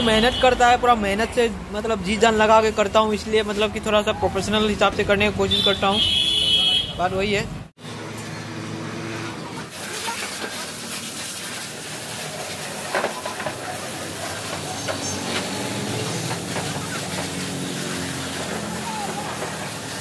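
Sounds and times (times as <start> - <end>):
pressure washer jet hissing: 9.7 - 20.0.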